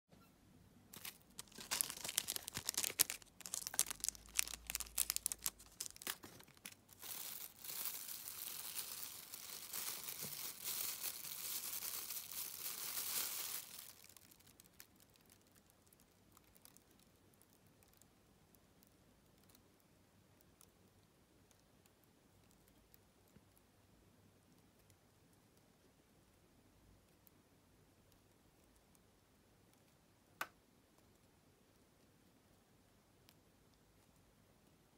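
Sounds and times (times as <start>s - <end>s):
plastic packets crinkling: 0.9s - 15.7s.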